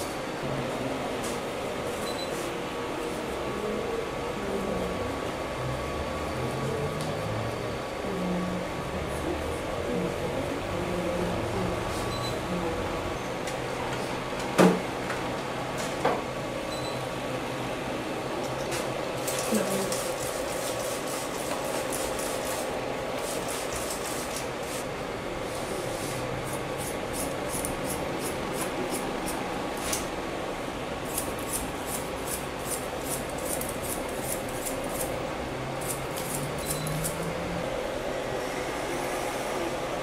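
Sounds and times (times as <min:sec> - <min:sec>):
scissors snipping hair: 0:26.5 - 0:30.1, 0:31.1 - 0:35.1, 0:35.8 - 0:37.3.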